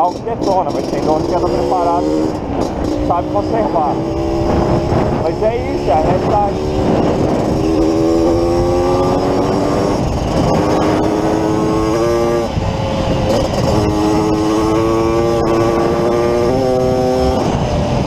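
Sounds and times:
two-stroke motorcycle engine: 0.0s - 18.0s
wind noise: 0.0s - 18.0s.

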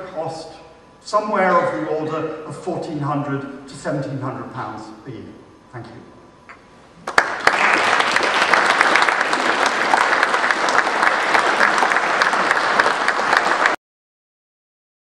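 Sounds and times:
audience applauding: 7.0s - 13.8s.

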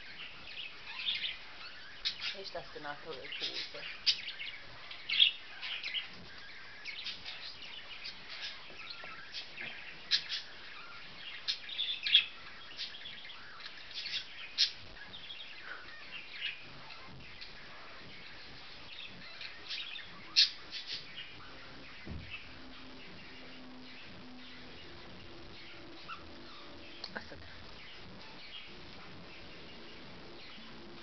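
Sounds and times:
cockatiel chirping: 0.0s - 31.0s.

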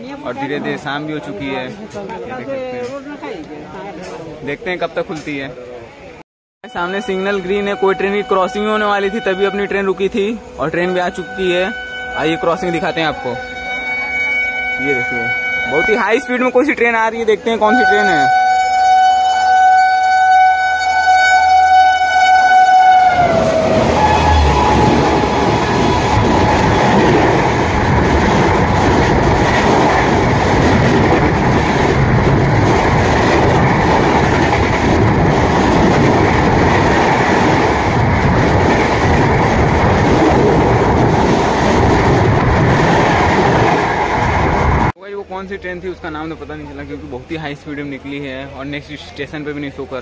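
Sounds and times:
train horn blast: 6.7s - 16.5s, 17.6s - 26.8s
train coaches rushing past: 22.3s - 44.9s.

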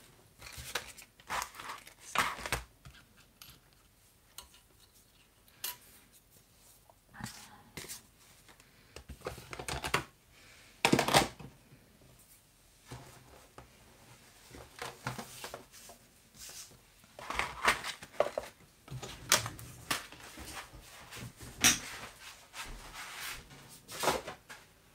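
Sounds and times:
plastic packages rustling: 0.4s - 2.7s, 17.1s - 20.8s.

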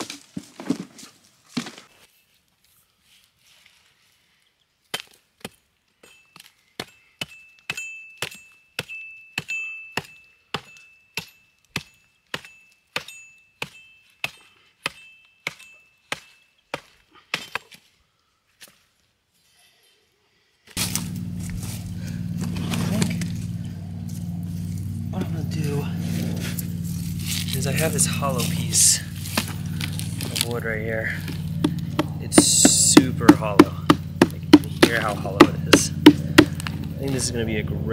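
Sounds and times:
wood chopping strikes: 6.8s - 17.8s, 20.8s - 23.6s, 26.5s - 37.0s.

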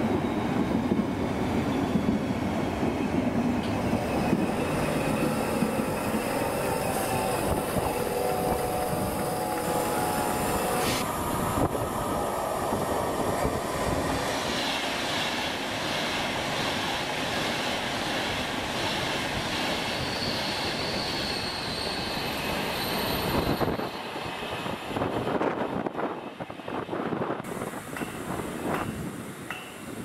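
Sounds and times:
electric train passing at speed: 0.0s - 30.0s.

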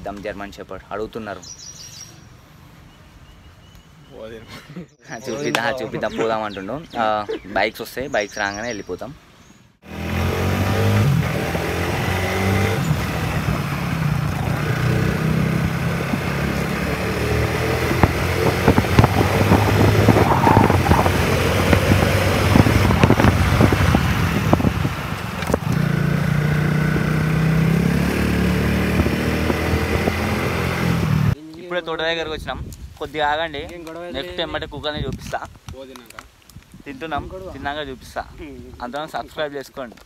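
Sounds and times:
motorcycle engine running: 9.9s - 31.4s
wind buffeting microphone: 10.7s - 28.0s, 28.7s - 31.4s, 32.0s - 35.8s.

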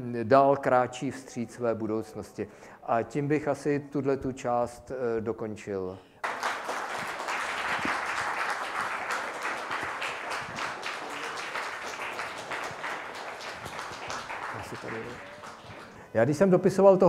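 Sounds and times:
audience applauding: 6.2s - 16.1s.

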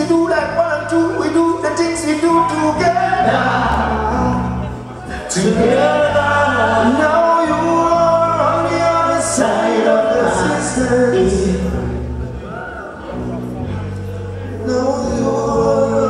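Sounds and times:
steady bass line: 0.0s - 16.0s
men singing together: 2.4s - 12.0s, 14.5s - 16.0s.

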